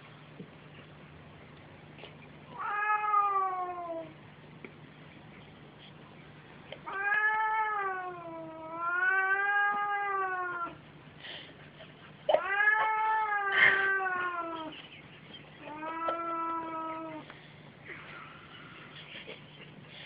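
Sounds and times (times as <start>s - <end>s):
cat yowling: 2.5s - 4.1s, 6.9s - 10.8s, 12.3s - 14.7s, 15.6s - 17.2s.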